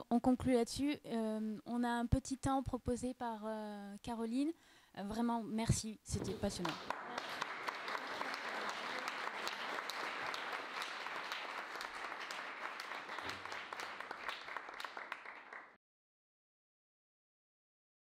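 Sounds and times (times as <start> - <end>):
audience applauding: 6.6 - 15.8.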